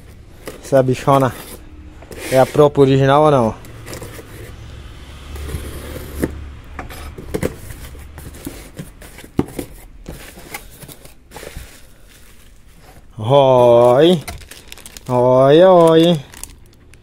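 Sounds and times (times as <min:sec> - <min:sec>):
cardboard flaps scraping: 0:00.1 - 0:02.8, 0:05.3 - 0:13.1
plastic packaging rustling: 0:05.3 - 0:17.0.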